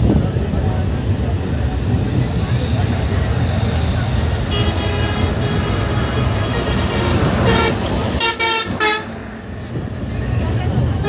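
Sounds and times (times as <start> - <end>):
bus engine and road rumble: 0.0 - 11.0
vehicle horn toots: 4.5 - 9.2.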